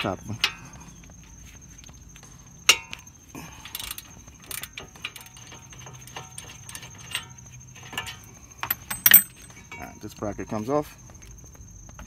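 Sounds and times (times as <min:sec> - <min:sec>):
wrench and socket clicking on metal: 0:08.6 - 0:09.5.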